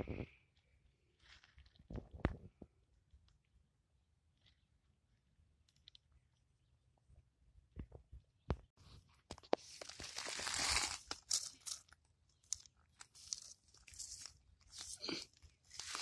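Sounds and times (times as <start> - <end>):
fingers scraping through sand and gravel: 9.7 - 11.8.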